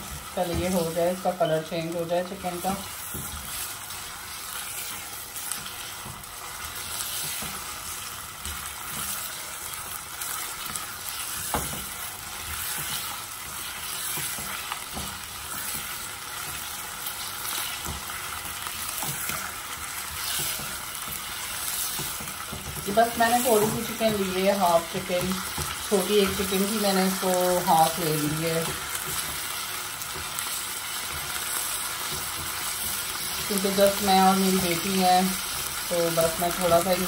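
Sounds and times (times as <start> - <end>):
chicken sizzling in oil: 0.0 - 37.0
spatula scraping pan: 10.3 - 29.5.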